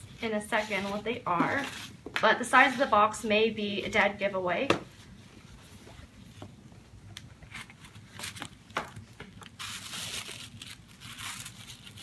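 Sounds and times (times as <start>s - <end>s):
ribbon and cardboard scraping: 0.2s - 3.2s
tissue paper rustling: 9.5s - 12.0s.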